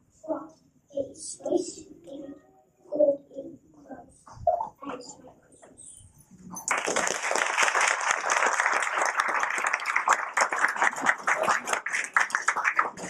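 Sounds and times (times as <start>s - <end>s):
audience applauding: 6.6s - 13.0s.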